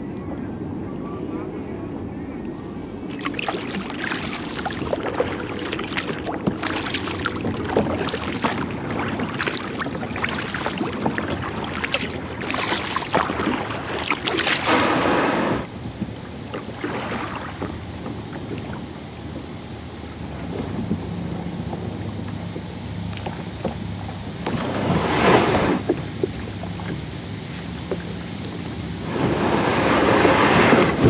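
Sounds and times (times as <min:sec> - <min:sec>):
water lapping against hull: 0:00.0 - 0:31.0
wind on microphone: 0:00.0 - 0:31.0
kayak paddle strokes: 0:03.1 - 0:31.0
hull grinding onto sand: 0:13.7 - 0:15.7, 0:24.4 - 0:25.9, 0:29.0 - 0:31.0.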